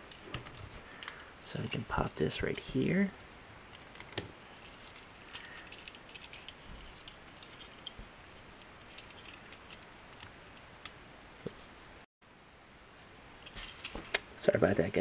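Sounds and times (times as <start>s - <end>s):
low steady hiss: 0.0s - 15.0s
plastic toy parts clicking: 3.7s - 4.3s, 4.9s - 8.0s, 8.6s - 11.0s.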